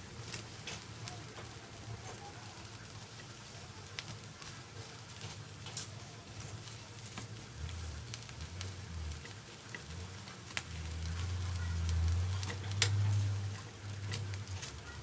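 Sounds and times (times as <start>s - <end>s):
shrimp sizzling in a pan: 0.0s - 15.0s
tongs clicking: 11.8s - 15.0s.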